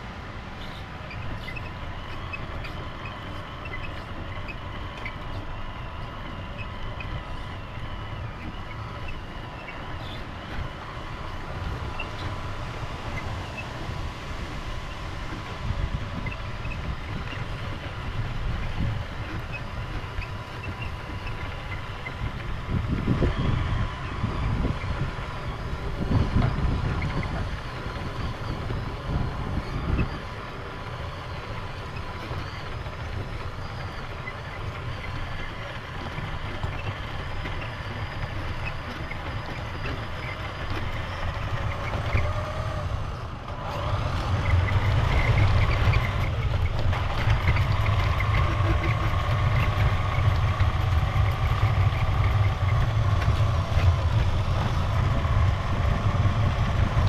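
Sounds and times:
toy truck electric motor: 15.6s - 57.0s
low rumble: 44.7s - 57.0s.

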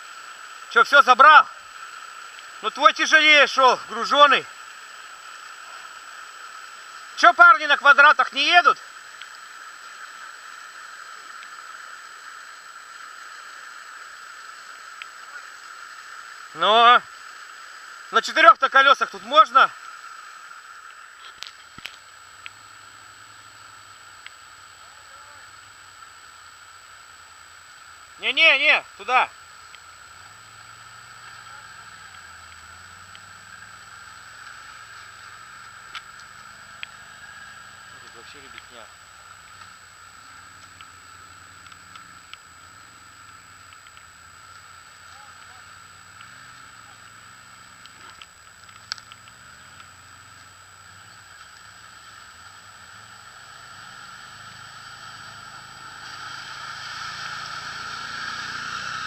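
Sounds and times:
distant quad bike engine: 0.0s - 59.0s
stream rushing over rocks: 0.0s - 59.0s
light clicks: 47.8s - 49.9s.

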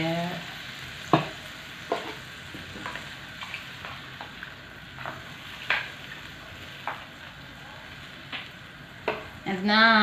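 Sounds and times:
meat sizzling in a pan: 0.0s - 10.0s
spatula knocking and scraping pan: 1.1s - 4.3s.

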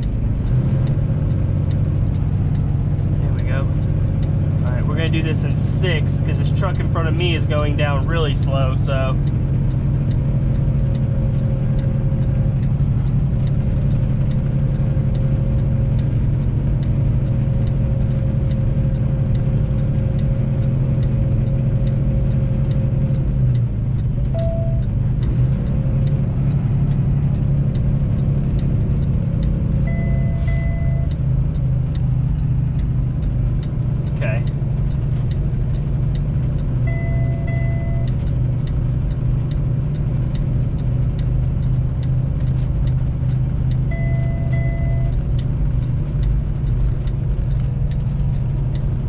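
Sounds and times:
diesel engine droning: 0.0s - 49.0s
faint ticking: 0.0s - 49.0s
short beeps: 24.2s - 24.9s, 29.8s - 31.2s, 36.9s - 38.2s, 43.9s - 45.2s.

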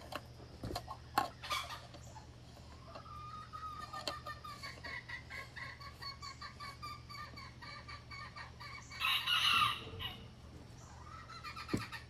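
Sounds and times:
chickens clucking: 0.0s - 12.0s
harsh chicken call: 3.1s - 10.4s.

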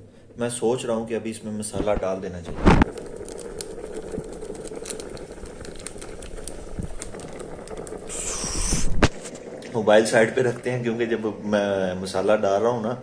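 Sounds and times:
foil sachet crinkling: 2.6s - 10.6s.

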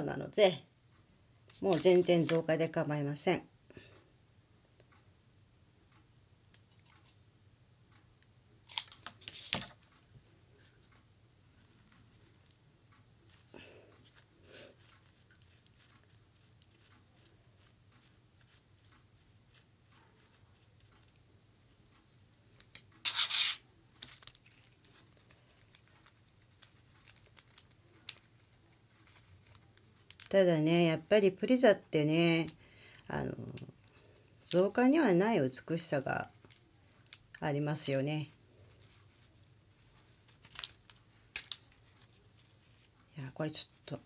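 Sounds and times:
hands rustling lace and flowers: 22.2s - 30.4s, 36.0s - 44.0s
scratchy rustles: 23.0s - 30.0s, 38.2s - 44.0s.

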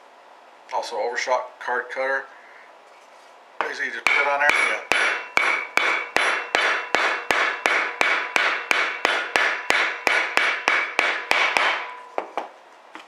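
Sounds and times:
hammer striking metal punch: 3.6s - 12.5s.

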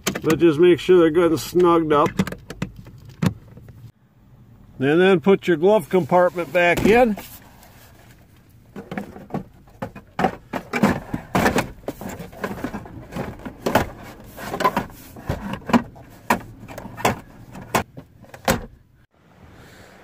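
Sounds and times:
plastic knocks clicks and rattles: 2.0s - 3.7s, 8.8s - 18.6s.

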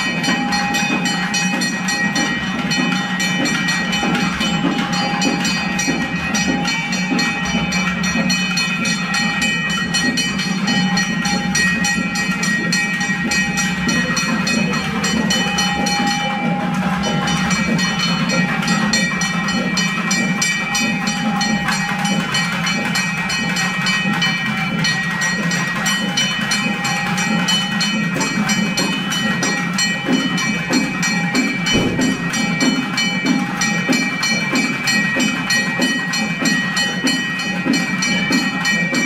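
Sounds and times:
rapid drumbeats: 0.0s - 39.0s.

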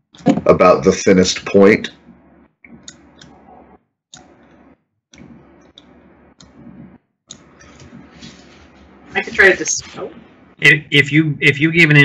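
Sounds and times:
computer mouse clicks: 2.6s - 3.4s, 4.1s - 6.6s
faint microphone background noise: 4.6s - 12.0s.

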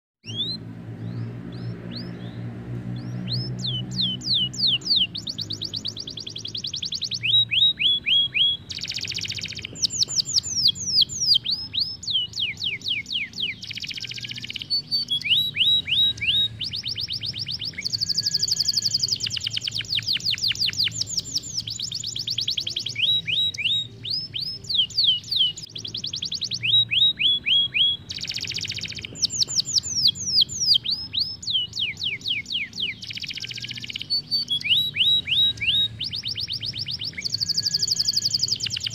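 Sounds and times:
canary singing trills: 0.2s - 38.9s.

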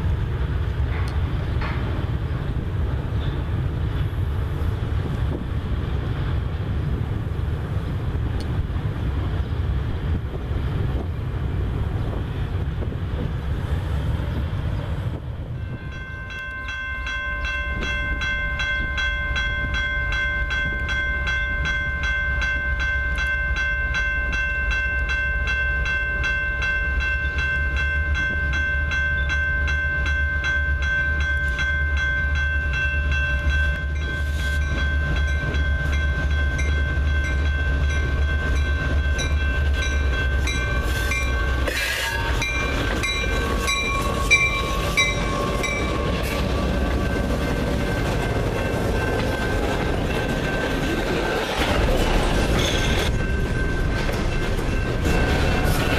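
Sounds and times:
diesel locomotives rumbling: 0.0s - 55.9s
sharp knocks from locomotives: 0.9s - 2.5s, 51.4s - 55.9s
bell ringing: 15.6s - 46.2s.

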